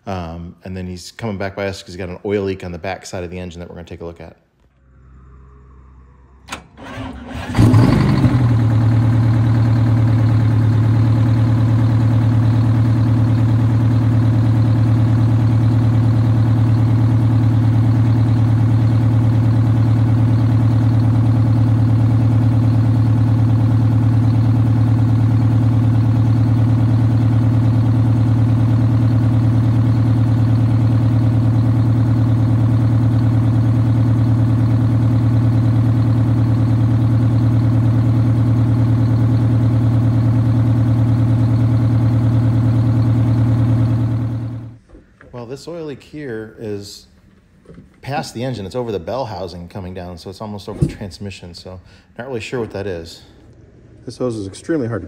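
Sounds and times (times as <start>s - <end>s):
diesel engine idling: 4.7s - 46.3s, 50.3s - 55.0s.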